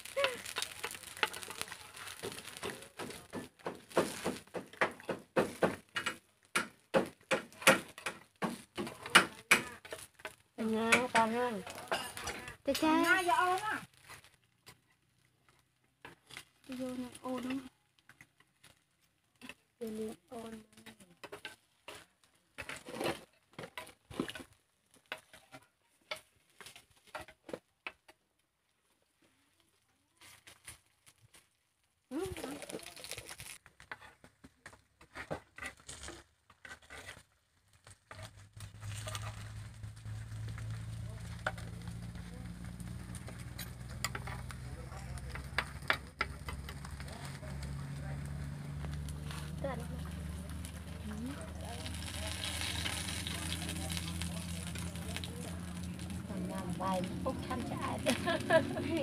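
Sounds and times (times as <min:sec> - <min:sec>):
spoon and sticks scraping metal pan: 0:00.0 - 0:27.6, 0:32.6 - 0:59.0
light knocks and clicks of cakes: 0:00.1 - 0:12.6, 0:32.6 - 0:58.4.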